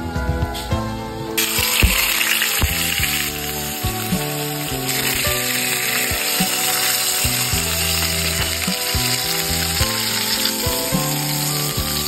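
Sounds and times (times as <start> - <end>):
fish sizzling in hot oil: 1.4 - 12.0.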